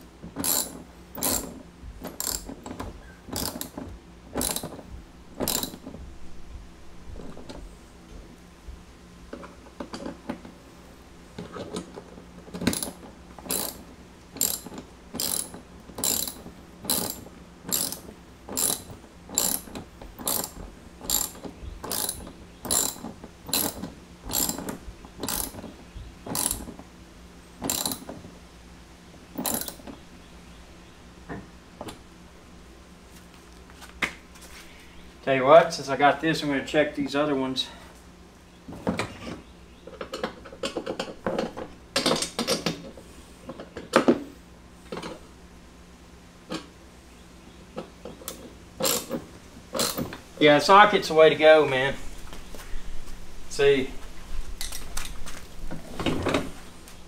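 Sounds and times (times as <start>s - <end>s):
ratchet wrench clicking: 0.4s - 2.8s, 3.4s - 3.8s, 4.4s - 4.7s, 5.4s - 5.8s, 12.6s - 13.8s, 14.4s - 25.6s, 26.3s - 26.7s, 27.6s - 28.1s, 29.4s - 29.8s, 48.3s - 49.2s, 49.8s - 50.0s.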